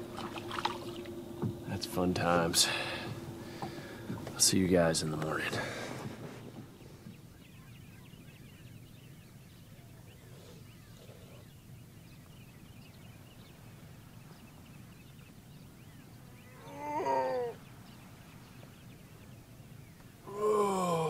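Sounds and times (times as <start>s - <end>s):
voice-like falling cries: 16.6s - 17.6s, 20.3s - 21.0s.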